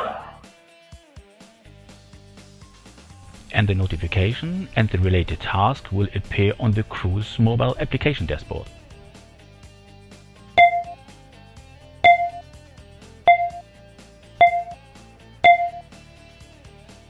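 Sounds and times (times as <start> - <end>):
soft background music: 2.9 - 9.9, 10.6 - 11.1, 12.0 - 12.5, 13.3 - 17.0
electronic notification pings: 10.6 - 11.0, 12.1 - 12.4, 13.3 - 13.6, 14.4 - 14.8, 15.4 - 15.9.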